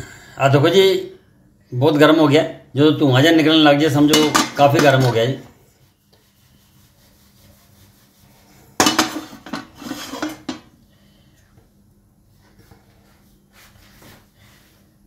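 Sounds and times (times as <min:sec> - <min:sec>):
faint steady hum: 0:00.0 - 0:15.0
metal cookware clattering: 0:04.0 - 0:05.4, 0:08.8 - 0:10.7.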